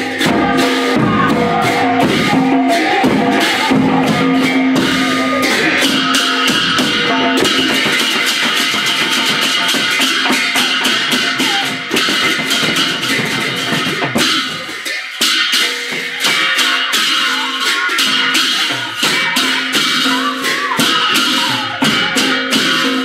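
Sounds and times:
fast dense percussion: 0.0 - 23.0.

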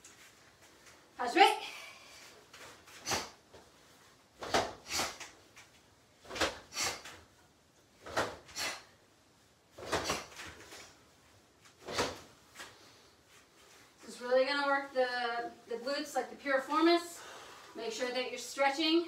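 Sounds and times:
uniforms swishing from kicks: 2.5 - 3.7, 4.4 - 7.3, 8.0 - 8.9, 9.7 - 11.0, 11.6 - 14.0.

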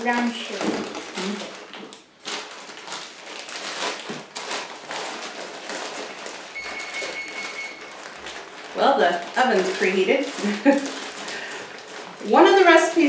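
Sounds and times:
plastic bag crinkling: 0.0 - 13.0
long electronic oven beep: 6.6 - 8.0.

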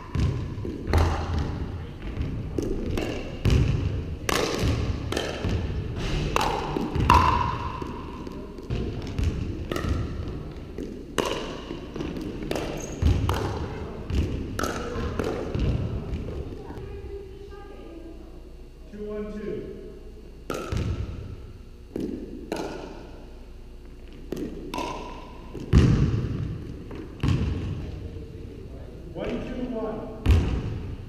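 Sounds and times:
ball bouncing on hardwood floor: 0.1 - 5.7, 6.4 - 16.6, 20.5 - 21.1, 24.1 - 27.8
paddles hitting plastic ball: 0.1 - 16.5, 20.5 - 21.1, 21.9 - 23.1, 24.1 - 27.6.

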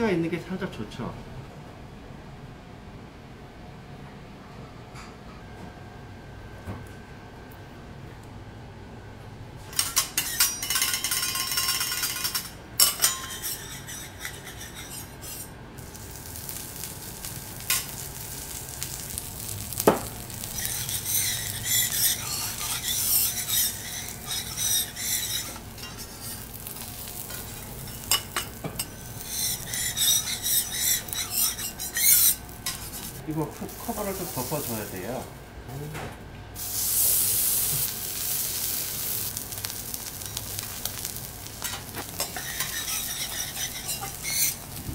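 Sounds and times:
onions sizzling on griddle: 13.0 - 35.4, 36.6 - 44.9.

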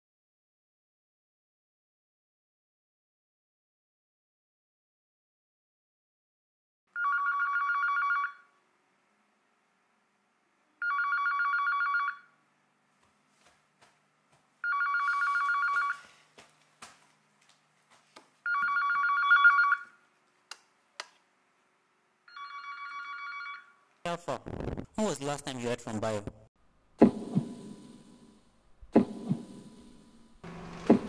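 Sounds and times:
telephone bell ringtone: 6.9 - 8.6, 10.8 - 12.4, 14.6 - 16.1, 18.4 - 20.0, 22.3 - 23.8.

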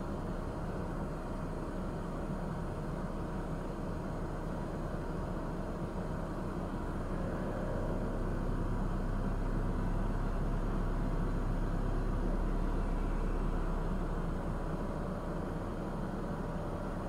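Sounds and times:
low outdoor rumble: 0.0 - 17.0
low hum: 5.6 - 17.0.

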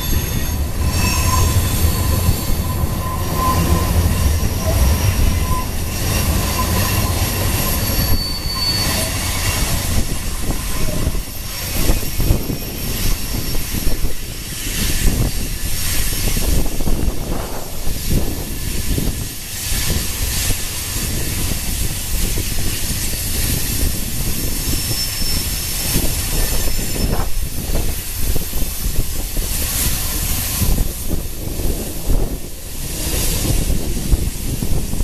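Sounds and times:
train wheels rumbling on rails: 0.0 - 35.0.

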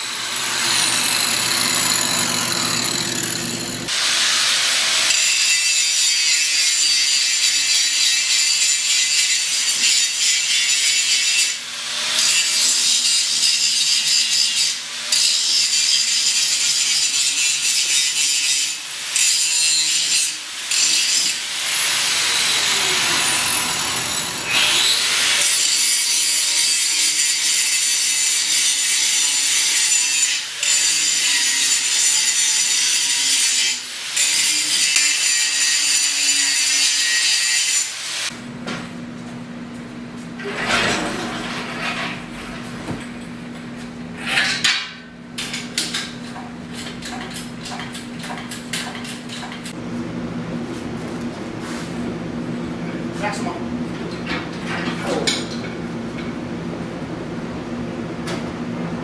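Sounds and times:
angle grinder cutting steel: 0.0 - 38.4.

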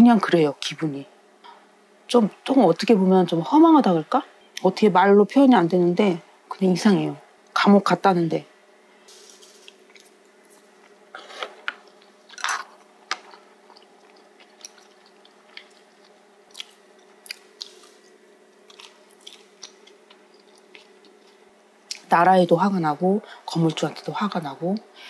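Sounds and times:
person chewing crunchy food: 9.6 - 21.5.

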